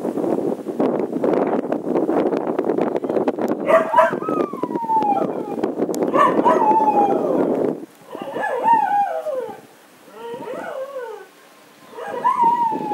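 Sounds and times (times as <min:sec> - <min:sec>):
dogs howling and whining: 0:03.7 - 0:11.3, 0:11.9 - 0:12.9.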